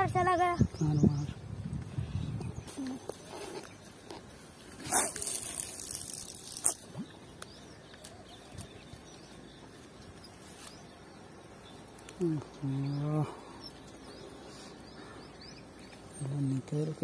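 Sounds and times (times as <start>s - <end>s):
line hissing off reel: 4.7s - 6.9s.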